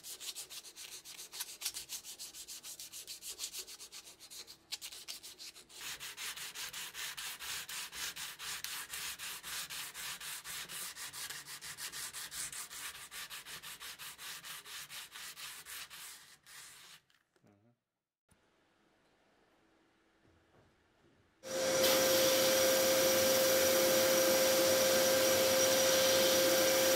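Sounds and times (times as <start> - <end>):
sandpaper rubbing on steel: 0.0 - 17.0.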